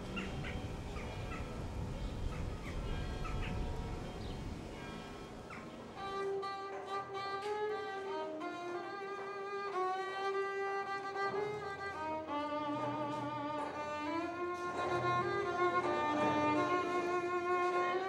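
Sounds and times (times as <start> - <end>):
solo violin slow melody: 5.8 - 18.0.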